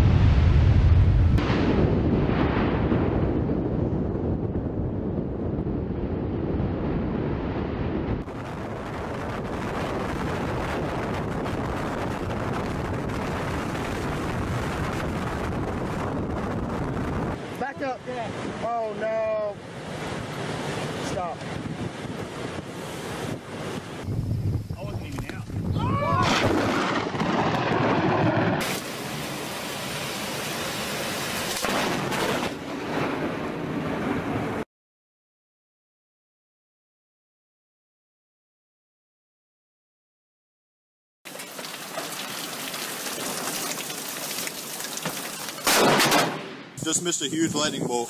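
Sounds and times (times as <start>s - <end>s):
violent wind roaring: 0.0s - 34.6s, 45.7s - 48.0s.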